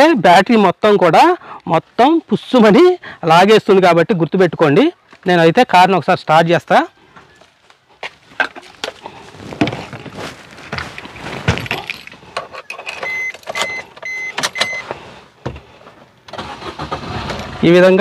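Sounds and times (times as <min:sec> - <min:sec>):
rustling in car seat: 0:08.7 - 0:12.2
keys jangling: 0:11.6 - 0:13.6
car warning chime beeping: 0:12.7 - 0:14.9.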